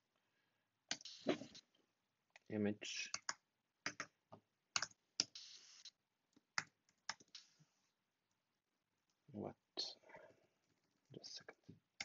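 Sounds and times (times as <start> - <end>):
computer keyboard typing: 3.1 - 4.1, 4.7 - 5.4, 6.6 - 7.5.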